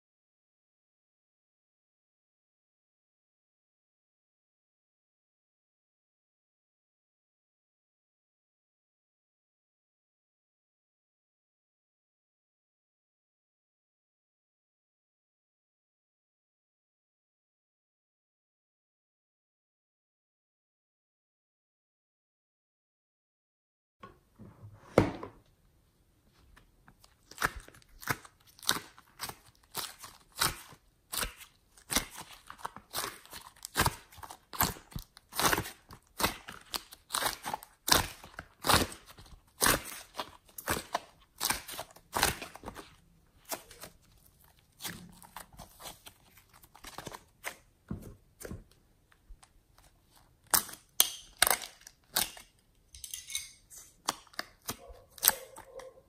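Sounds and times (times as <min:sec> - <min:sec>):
sticky clay crackling and snapping: 0:26.8 - 0:52.8, 0:53.9 - 0:55.8.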